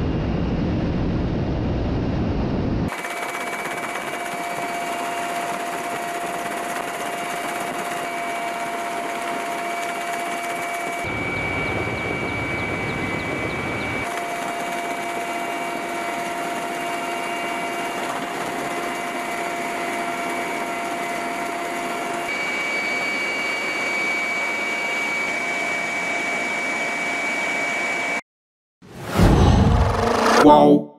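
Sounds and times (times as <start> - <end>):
helicopter flying past low: 0.0 - 28.0
engine whine with high tones: 7.9 - 28.0, 28.9 - 30.6.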